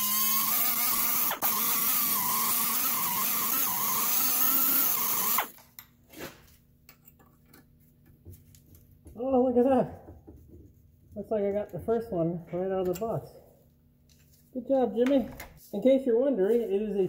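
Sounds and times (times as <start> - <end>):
air tool whining at high speed: 0.0 - 5.5.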